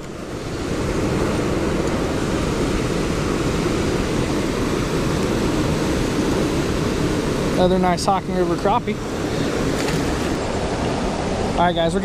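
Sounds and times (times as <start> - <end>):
river rushing: 0.0 - 12.0.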